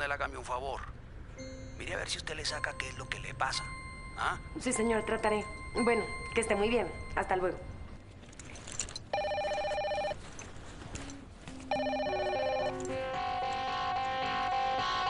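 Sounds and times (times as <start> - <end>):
background music: 1.2 - 8.0, 11.0 - 15.0
telephone ringing trill: 2.4 - 8.1, 9.1 - 10.2, 11.6 - 14.2.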